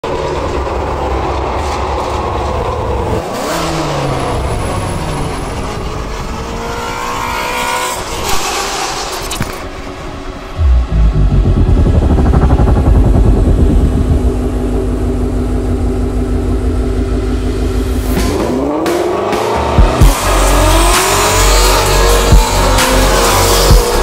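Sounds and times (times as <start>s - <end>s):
road noise: 0.0s - 24.0s
car engine revving: 10.4s - 24.0s.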